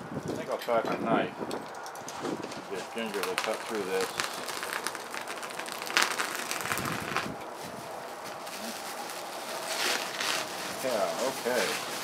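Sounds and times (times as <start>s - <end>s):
knife cutting bubble wrap: 2.8s - 12.0s.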